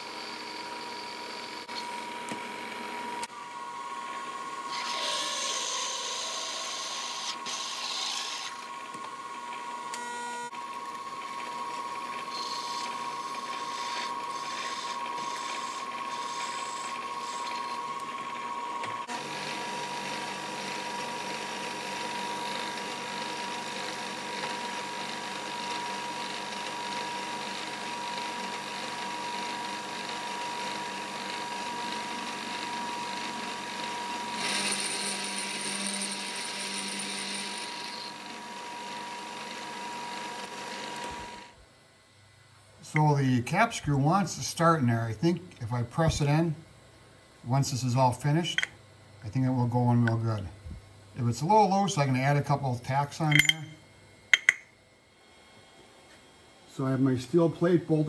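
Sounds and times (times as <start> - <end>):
drill cutting steel plate: 0.0 - 2.3, 4.7 - 8.7, 11.8 - 41.5
milling machine spindle whine: 0.0 - 41.6.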